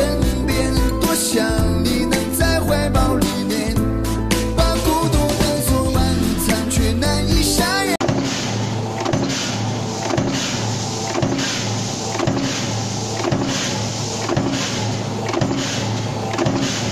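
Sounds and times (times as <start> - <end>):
stamping press clacking: 8.0 - 16.9.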